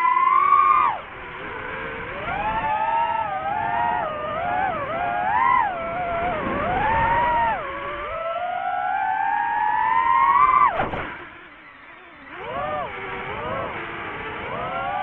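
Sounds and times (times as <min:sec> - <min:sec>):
drone propellers whining: 0:00.0 - 0:15.0.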